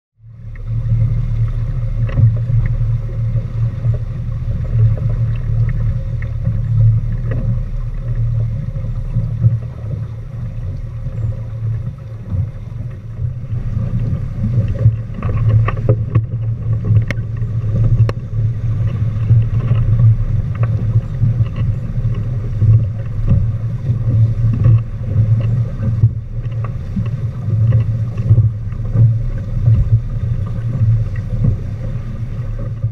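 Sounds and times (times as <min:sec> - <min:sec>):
water rushing along hull: 0:00.2 - 0:32.9
wind buffeting microphone: 0:00.6 - 0:32.9
light knocks and ticks: 0:14.0 - 0:18.2, 0:18.8 - 0:31.6.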